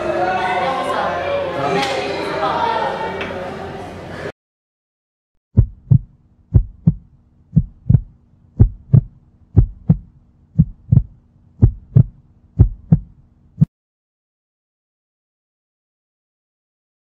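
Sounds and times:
faint low hum: 0:05.6 - 0:13.7
heartbeat thumps: 0:05.6 - 0:13.7.

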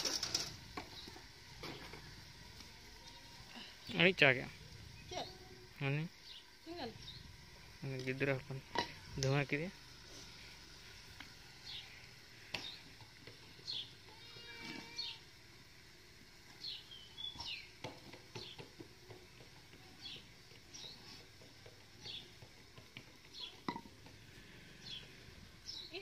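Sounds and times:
small birds chirping: 0:04.8 - 0:08.4, 0:11.5 - 0:15.2, 0:16.5 - 0:26.0.

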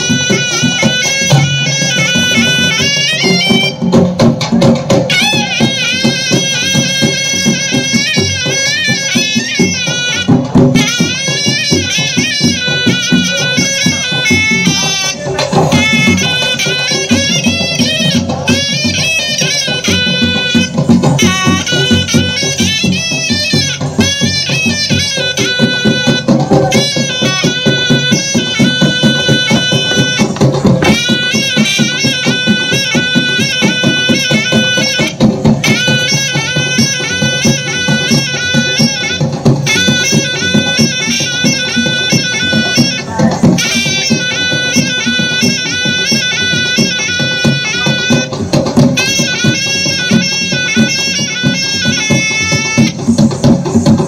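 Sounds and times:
high wind instrument melody: 0:00.0 - 0:54.0
steady drum beats: 0:00.0 - 0:54.0.

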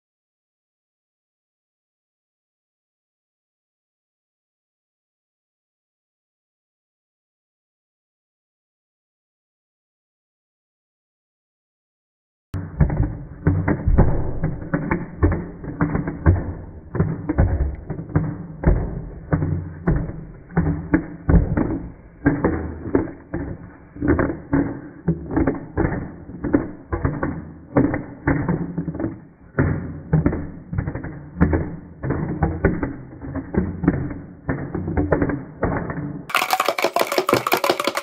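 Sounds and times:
slowed paint tin thuds: 0:12.6 - 0:38.0.

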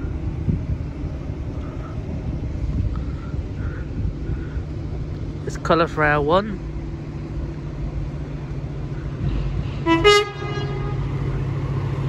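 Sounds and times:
low engine drone: 0:00.0 - 0:12.0
two-tone horn: 0:09.8 - 0:11.1.

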